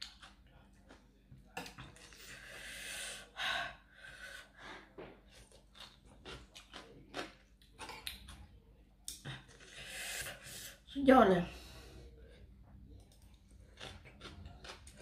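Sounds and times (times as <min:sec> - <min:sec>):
chewing and smacking: 0:00.0 - 0:02.3, 0:05.3 - 0:09.8, 0:12.9 - 0:15.0.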